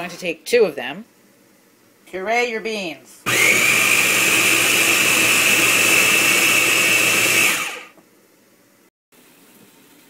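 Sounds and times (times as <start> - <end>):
food processor motor whining: 3.3 - 8.0.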